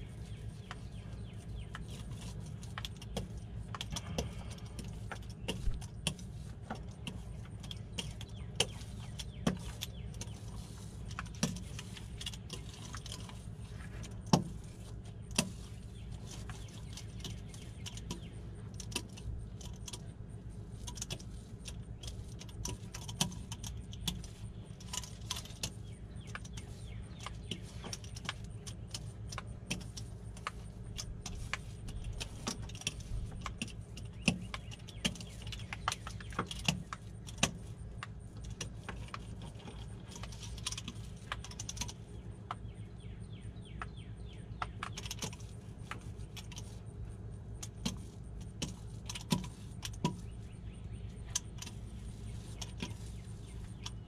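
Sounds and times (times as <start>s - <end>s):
metal roller clicking and rattling: 0.2s - 20.1s.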